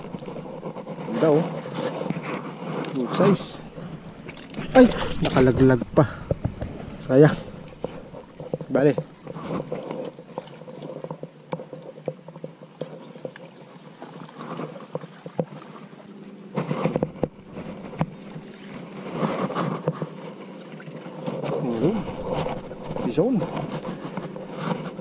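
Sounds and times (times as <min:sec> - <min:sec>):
faint steady drone: 0:00.0 - 0:25.0.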